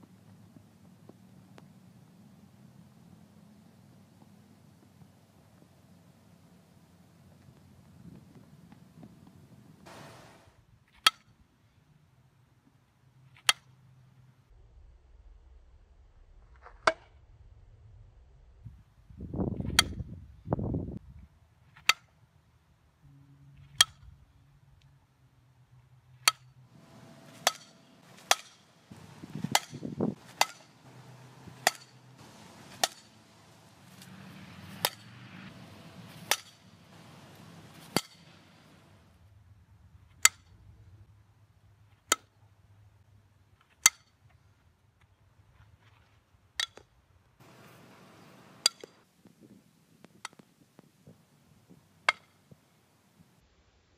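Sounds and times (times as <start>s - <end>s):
low rumbles: 14.4s - 21.2s, 26.7s - 41.1s
bat cracking ball: 26.8s - 38.9s.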